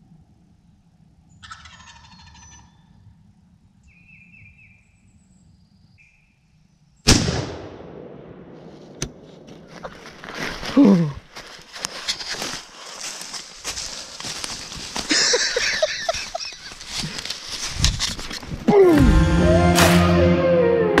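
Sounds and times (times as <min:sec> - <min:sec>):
turkey gobbling: 0:01.4 - 0:02.7
small bird chirps: 0:03.8 - 0:06.4.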